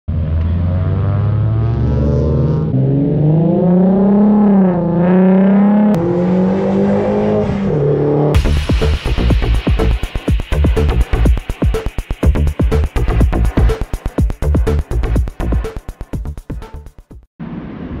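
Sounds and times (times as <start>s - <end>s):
cars accelerating past: 0.1s - 8.4s.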